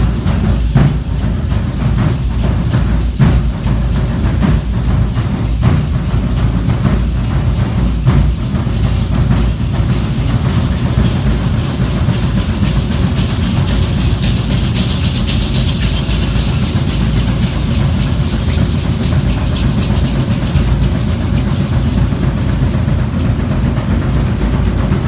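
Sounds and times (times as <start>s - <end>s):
drum beating steady rhythm: 0.0s - 25.0s
hand rattles shaking: 7.1s - 25.0s.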